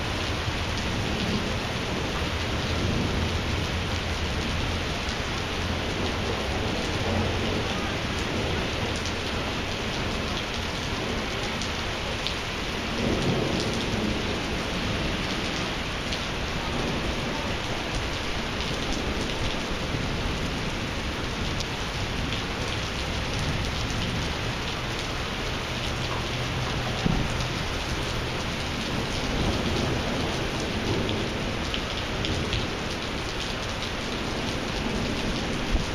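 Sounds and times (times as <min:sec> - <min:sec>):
heavy rain on pavement: 0:00.0 - 0:35.9
thunder rumbling: 0:12.6 - 0:35.9.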